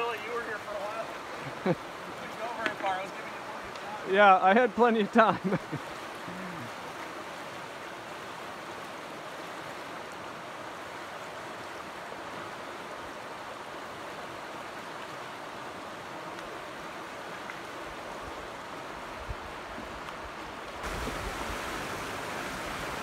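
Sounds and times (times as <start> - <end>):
stream rushing over riffle: 0.0 - 23.0.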